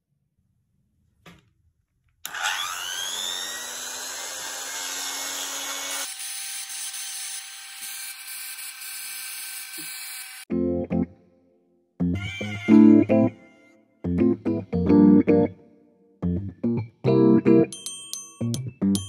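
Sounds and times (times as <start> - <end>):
rotary tool motor whine: 2.3 - 10.4.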